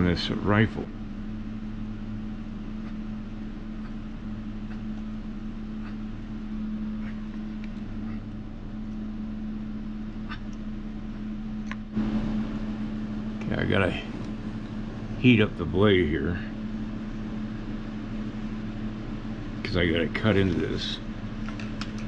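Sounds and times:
low machinery hum: 0.0s - 22.0s.

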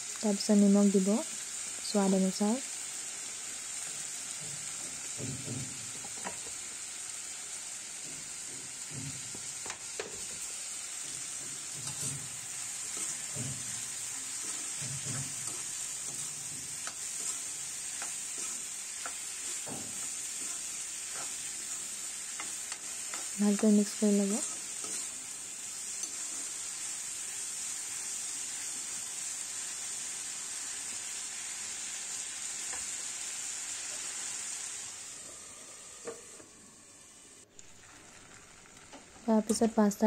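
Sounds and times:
vegetables sizzling in oil: 0.0s - 40.0s
spatula scraping pan: 8.0s - 27.0s.

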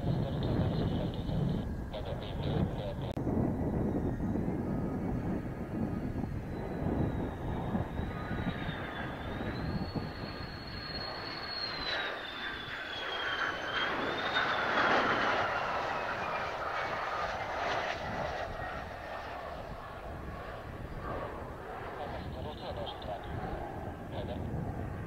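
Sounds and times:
wind rumble on microphone: 0.0s - 12.1s, 14.8s - 25.0s
jet engine whining: 0.0s - 25.0s.

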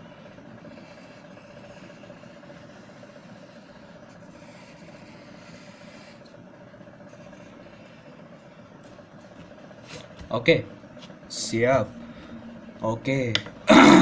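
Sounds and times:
mechanical hum with held tone: 0.0s - 14.0s
pencil scratching on paper: 0.1s - 10.1s.

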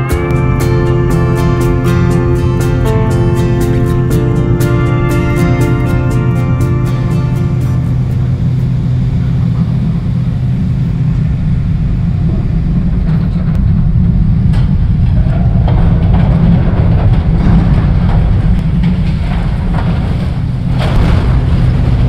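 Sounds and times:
diesel machinery rumbling: 0.0s - 22.0s
clattering: 12.9s - 22.0s.

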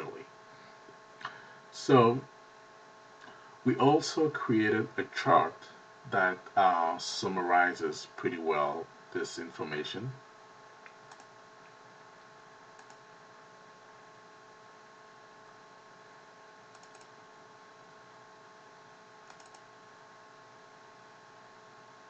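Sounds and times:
electrical hum and hiss: 0.0s - 22.0s
computer mouse clicks: 10.8s - 11.4s, 12.8s - 13.0s, 16.7s - 17.2s, 19.2s - 19.7s.

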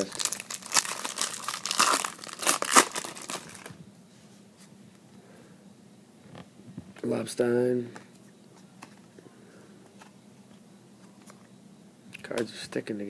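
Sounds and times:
foil wrapper tearing and crinkling: 0.0s - 3.7s.

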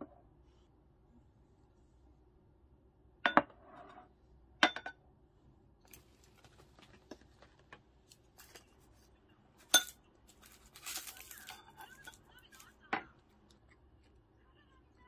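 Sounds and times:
tableware clinking: 3.3s - 4.0s, 4.6s - 5.0s, 9.6s - 10.0s, 10.8s - 12.3s.

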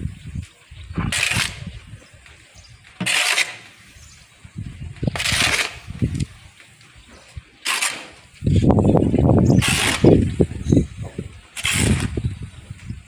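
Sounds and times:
shovel scraping sawdust: 1.0s - 1.8s, 2.8s - 4.3s, 5.0s - 6.4s, 7.2s - 8.8s, 9.5s - 10.3s, 11.6s - 12.3s.

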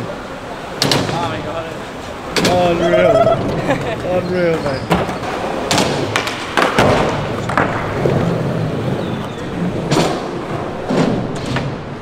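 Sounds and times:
skateboards rolling: 0.0s - 12.0s
skateboard impacts and tail slaps: 4.9s - 12.0s.

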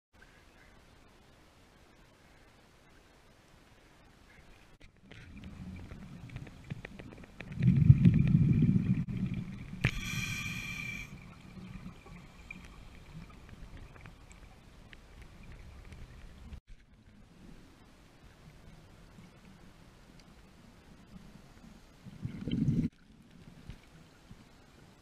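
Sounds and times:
faint ticks and clicks: 2.0s - 25.0s
bubbling exhaled air underwater: 7.0s - 13.5s, 22.1s - 22.9s
regulator buzzing inhale: 9.8s - 11.2s.

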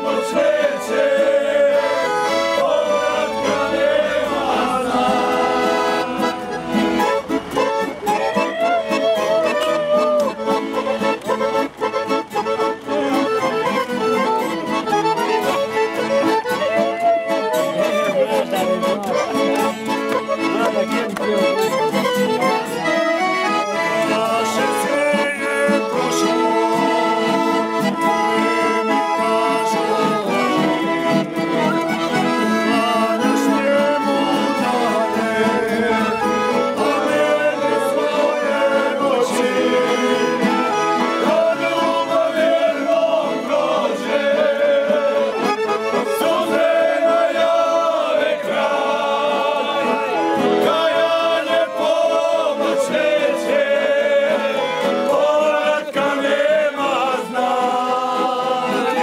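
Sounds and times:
men singing along: 0.0s - 7.1s, 23.7s - 31.2s, 32.4s - 59.0s
accordions playing folk tune: 0.0s - 59.0s
acoustic guitar: 0.0s - 59.0s.

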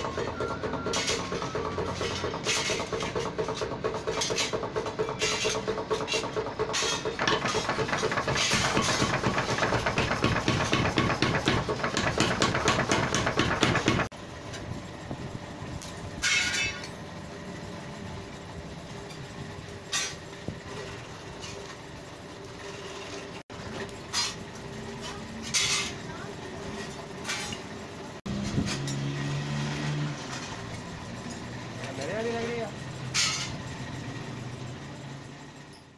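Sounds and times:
hammering on steel trowel: 0.0s - 14.1s
sharp knocks: 6.6s - 14.1s.

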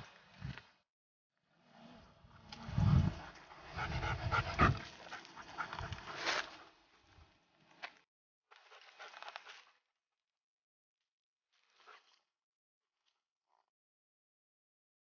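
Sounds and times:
dog panting: 3.2s - 6.6s.

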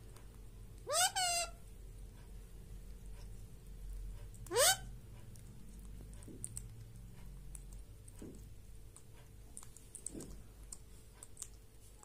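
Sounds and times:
parrot beak clicking: 5.8s - 8.3s, 8.9s - 11.6s.

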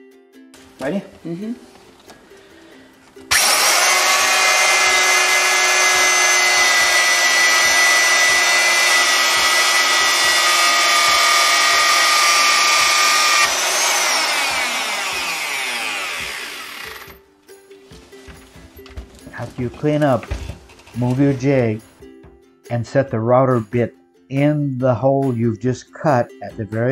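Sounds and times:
electric router whining: 3.3s - 17.2s.

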